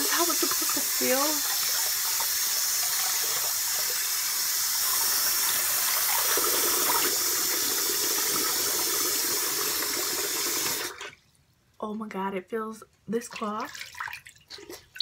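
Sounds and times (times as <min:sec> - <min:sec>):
sink tap running: 0:00.0 - 0:11.0.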